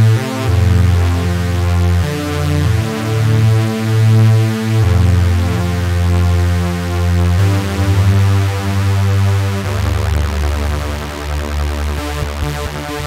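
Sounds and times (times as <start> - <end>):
synthesizer chords over bass: 0.0 - 13.0.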